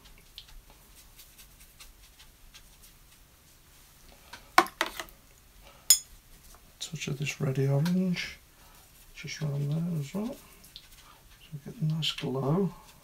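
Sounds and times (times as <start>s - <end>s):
brush strokes on paper: 0.0s - 4.0s, 8.2s - 13.0s.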